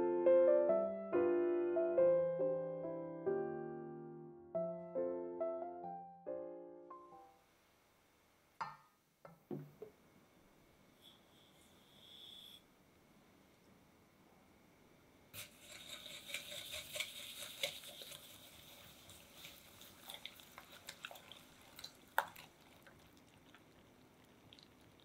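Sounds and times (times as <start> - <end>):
whisk swishing in glass bowl: 15.4 - 21.4.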